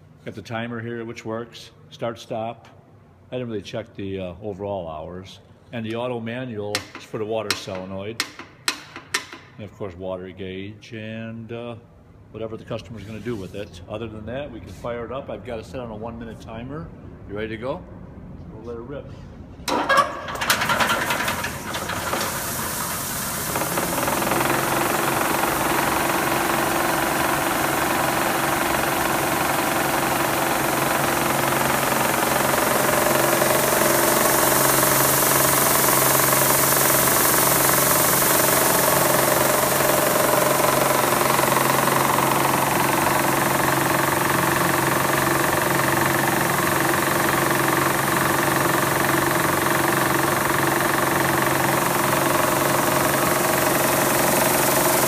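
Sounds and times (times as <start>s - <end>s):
machine switch clunk: 6.7s - 9.6s
motor hum: 19.7s - 55.0s.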